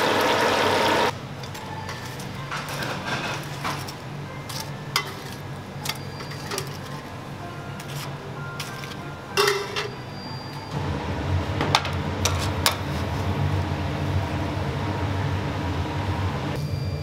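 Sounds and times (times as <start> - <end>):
low steady hum: 1.0 - 17.0
metal dishes and utensils clanking: 1.2 - 10.7, 11.7 - 13.2.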